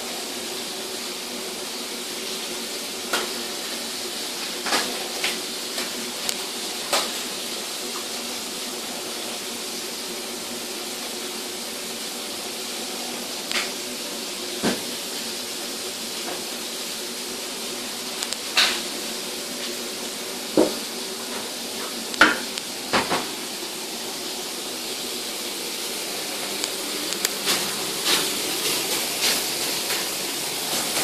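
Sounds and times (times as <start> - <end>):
steady hiss: 0.0 - 31.0.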